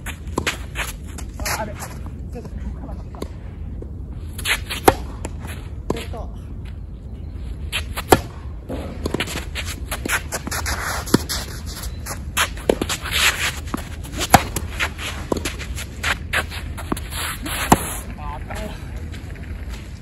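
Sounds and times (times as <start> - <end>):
tennis ball hit by racket: 14.1 - 18.0.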